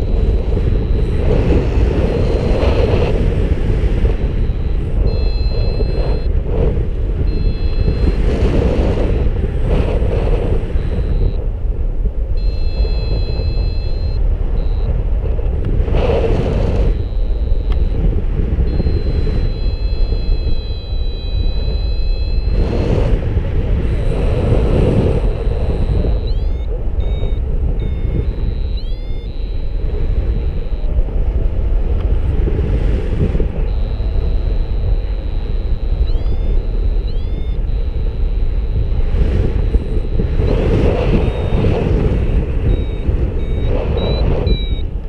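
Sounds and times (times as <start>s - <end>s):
faint high steady tones: 0.0s - 11.5s, 12.2s - 15.4s, 16.4s - 45.0s
wind rushing over microphone: 0.0s - 45.0s
short rising chirps: 4.4s - 6.3s, 12.4s - 14.9s, 18.7s - 23.1s, 25.2s - 30.8s, 33.6s - 38.8s, 42.7s - 44.8s.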